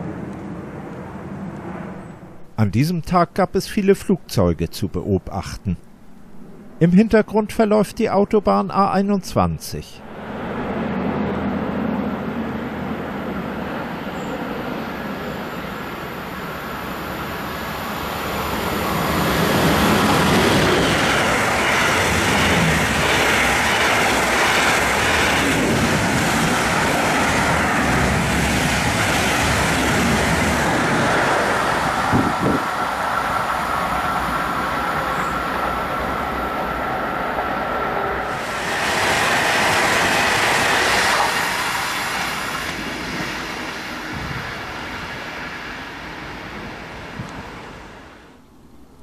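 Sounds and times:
steady high whine: 0.0 - 49.0
train wheels rumbling on rails: 10.2 - 48.3.

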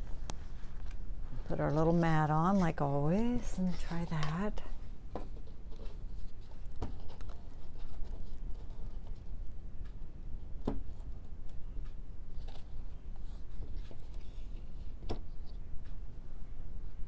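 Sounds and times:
steady low hum: 0.0 - 17.0
light scraping and handling: 0.4 - 9.2.

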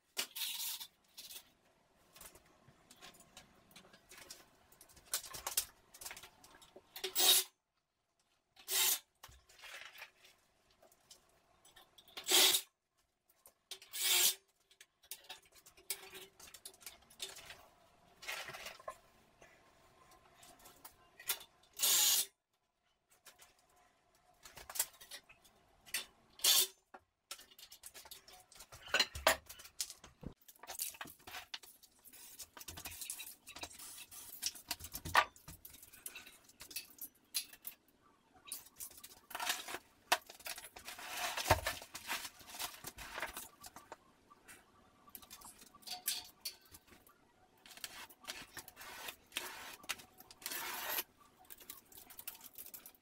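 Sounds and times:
drywall scraping: 40.8 - 43.3, 47.8 - 51.0.

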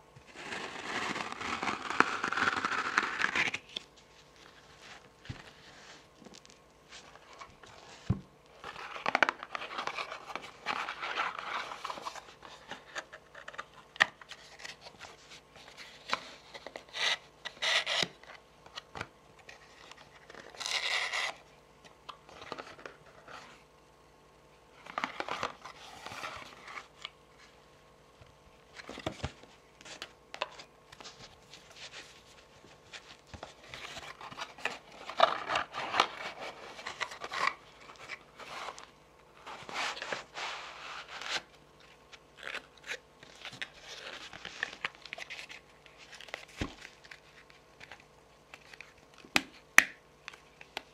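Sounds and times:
cardboard rubbing and sliding: 39.4 - 41.5.

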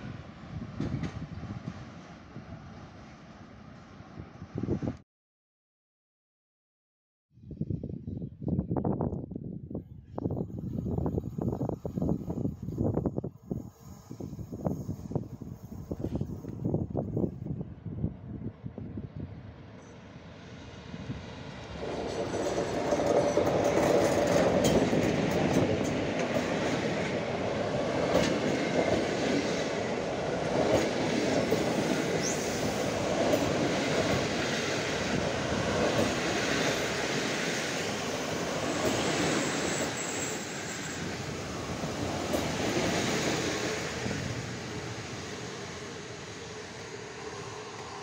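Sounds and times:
passenger train rolling past: 0.0 - 5.0, 10.0 - 48.0
wheels clicking over rail joints: 21.7 - 27.2.

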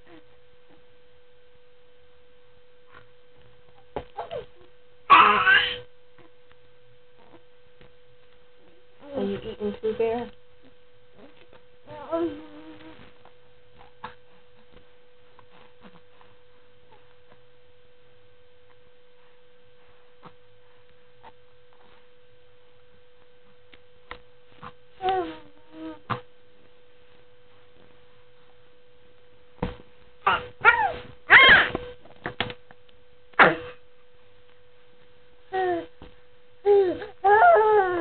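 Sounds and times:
faint steady hum: 0.0 - 38.0
baby cooing: 4.2 - 6.3, 11.2 - 13.1, 25.0 - 26.2, 30.2 - 31.8, 36.7 - 38.0.

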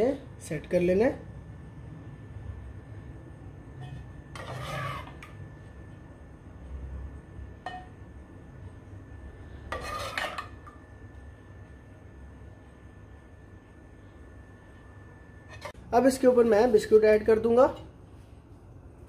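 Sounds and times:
metal spoon scraping dish: 3.8 - 5.4, 9.7 - 10.8, 15.4 - 15.8.

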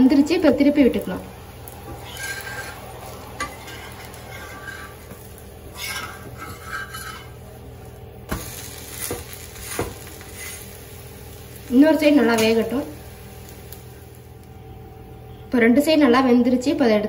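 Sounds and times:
faint sizzle: 0.0 - 17.0
metal spatula scraping pan: 1.9 - 7.4.

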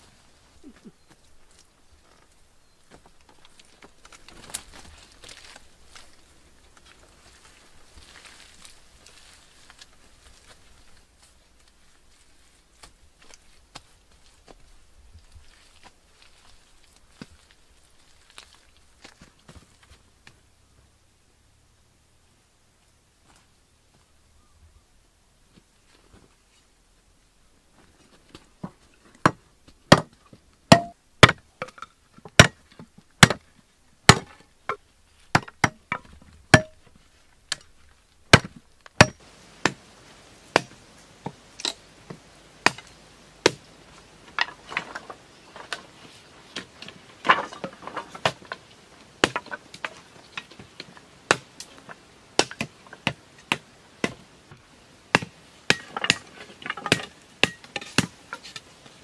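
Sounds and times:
blade chopping wooden poles: 29.2 - 33.5, 34.1 - 36.8, 38.3 - 39.8, 40.5 - 43.7, 46.5 - 54.2, 55.1 - 58.6.

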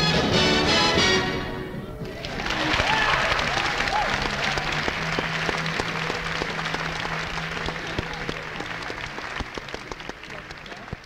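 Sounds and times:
big band music: 0.0 - 1.8
audience applauding: 2.0 - 11.0.

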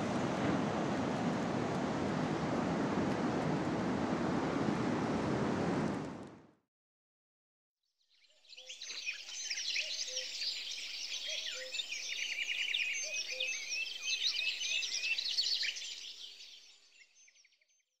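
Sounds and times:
many birds chirping and singing: 8.2 - 17.6.

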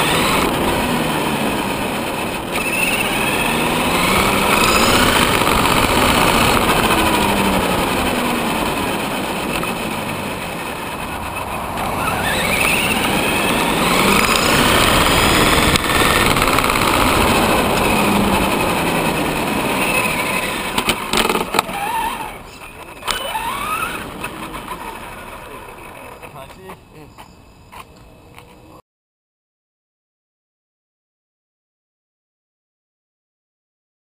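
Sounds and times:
electric motor whining: 0.0 - 26.3
tyre and road noise: 0.0 - 28.8.

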